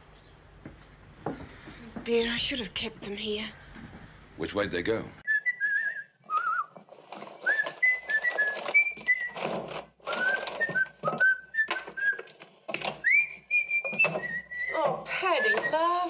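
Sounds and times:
man whistling a tune: 5.3s - 6.7s, 7.4s - 9.4s, 10.1s - 12.3s, 13.0s - 14.7s.

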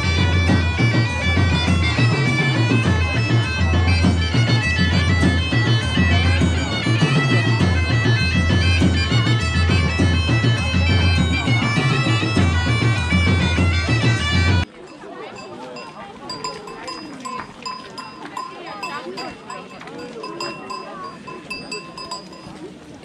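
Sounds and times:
bagpipes playing over a drone: 0.0s - 14.7s.

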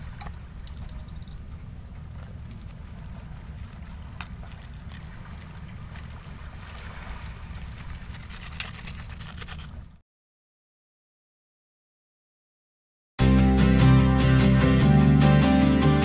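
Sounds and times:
plastic sachets crinkling: 7.6s - 9.8s.

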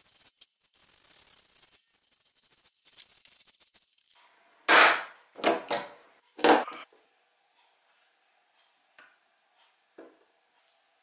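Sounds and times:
paintbrush brushing on metal: 0.0s - 4.2s.

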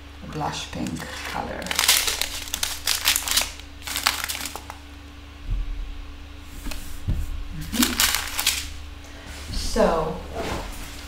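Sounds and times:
plastic bags crinkling: 0.7s - 4.9s, 7.6s - 8.8s.

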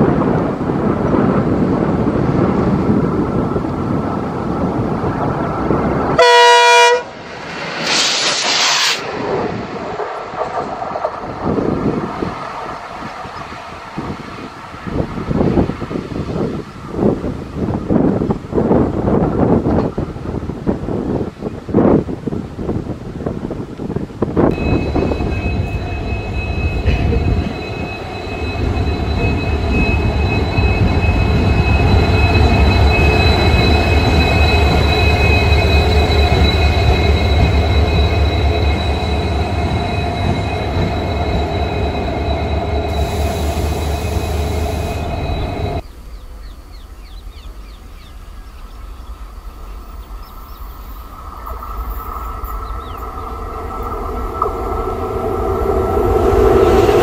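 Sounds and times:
diesel locomotive engine rumble: 0.0s - 57.0s
electric locomotive approaching: 0.0s - 57.0s
high-pitched whines: 24.5s - 45.8s, 50.8s - 57.0s.

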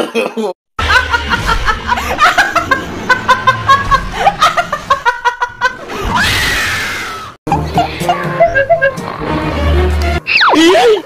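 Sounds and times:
woman laughing hard: 0.8s - 6.1s, 7.5s - 9.0s.

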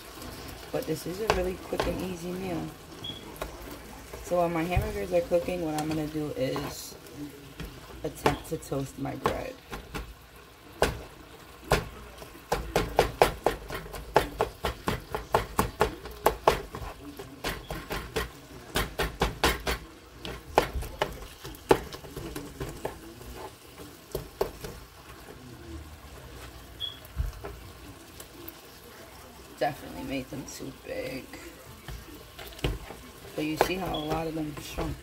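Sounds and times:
spatula tapping and scraping a pan: 1.0s - 2.5s, 3.1s - 6.8s, 7.6s - 10.2s, 10.8s - 25.4s, 31.7s - 35.0s.

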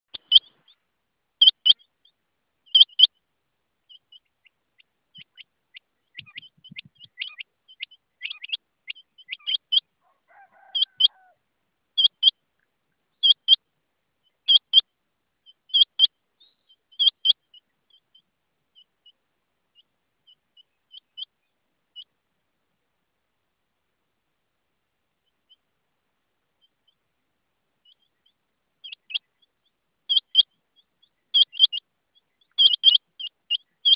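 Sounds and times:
soft scattered quail notes: 0.1s - 0.8s, 3.8s - 11.4s, 27.8s - 33.9s
quail high double call: 9.3s - 11.4s.

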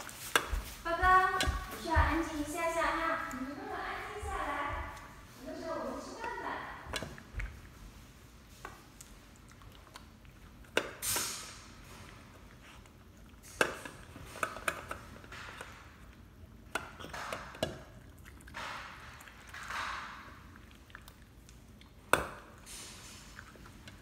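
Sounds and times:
dog chewing: 6.2s - 11.0s, 11.6s - 24.0s.

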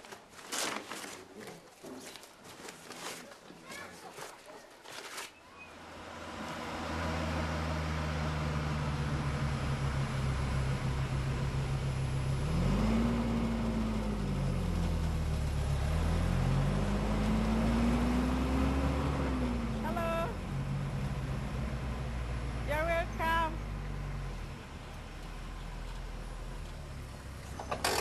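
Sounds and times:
road noise: 5.6s - 28.0s
car engine from inside cabin: 6.2s - 22.8s.

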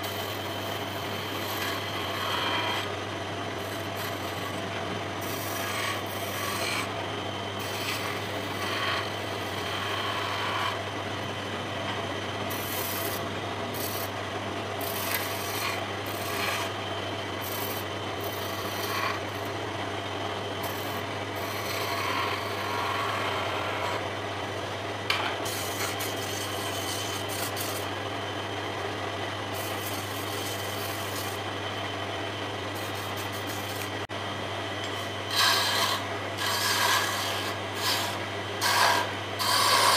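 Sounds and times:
chisel scraping wood: 0.0s - 2.9s, 3.6s - 6.9s, 7.6s - 10.8s, 12.5s - 14.1s, 14.8s - 16.7s, 17.4s - 19.3s, 20.6s - 24.0s, 25.1s - 27.9s, 29.6s - 31.4s, 32.8s - 34.0s, 34.8s - 39.9s
lathe motor hum: 0.0s - 39.9s.

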